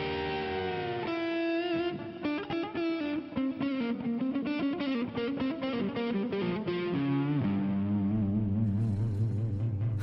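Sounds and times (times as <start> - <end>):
electric guitar lead melody: 0.0 - 10.0.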